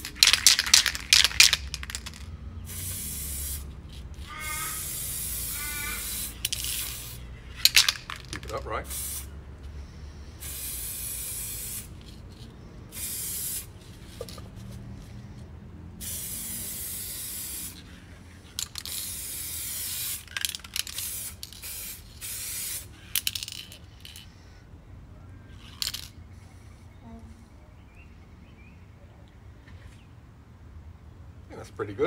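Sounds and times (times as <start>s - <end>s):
spray paint can hissing: 0.0s - 9.4s, 10.4s - 14.5s, 16.0s - 17.9s, 18.5s - 24.3s.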